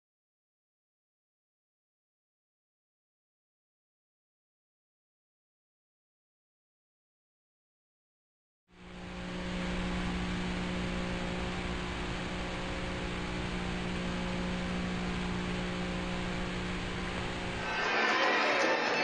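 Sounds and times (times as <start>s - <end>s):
low electrical hum: 8.8s - 17.7s
videotape hiss: 8.8s - 19.0s.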